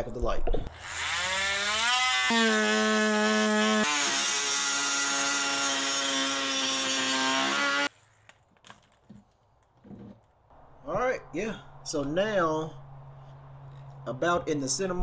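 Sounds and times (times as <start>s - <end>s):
power tool cutting plastic: 0.7s - 7.9s.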